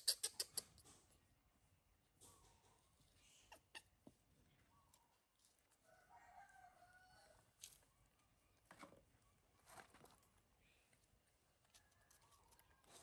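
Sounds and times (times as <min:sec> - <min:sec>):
rooster crowing: 0:05.8 - 0:07.5.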